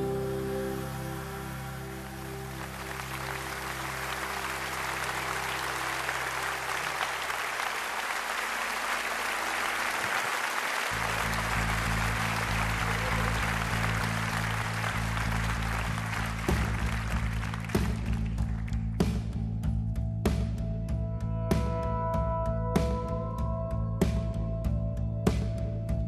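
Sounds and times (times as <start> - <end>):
low steady instrument notes: 0.0 - 7.4
low chord of song: 0.0 - 18.4
audience applauding: 0.0 - 19.2.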